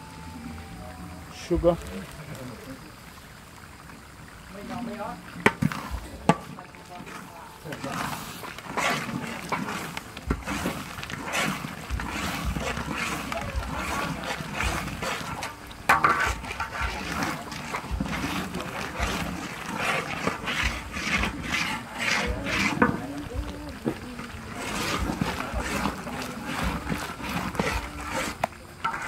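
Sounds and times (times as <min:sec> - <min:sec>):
sauce sizzling: 0:00.0 - 0:29.0
metal spatula scraping wok: 0:05.4 - 0:23.2, 0:23.8 - 0:29.0.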